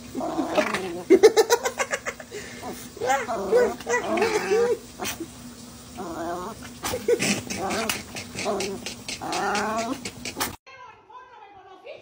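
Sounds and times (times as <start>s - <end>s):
small dog growling: 0.1s - 1.8s, 2.5s - 5.3s, 5.9s - 10.6s.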